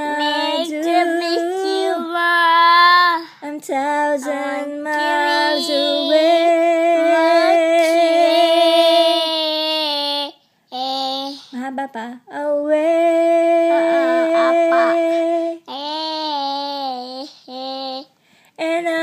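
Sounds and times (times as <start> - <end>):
child singing long notes: 0.0 - 3.3, 4.2 - 11.5, 13.4 - 18.1.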